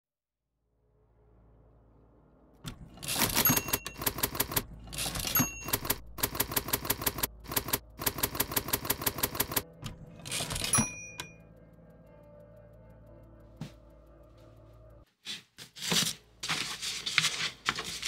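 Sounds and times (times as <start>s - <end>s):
typewriter keys clacking: 2.7s - 11.4s
typewriter bell ring: 3.0s - 11.4s.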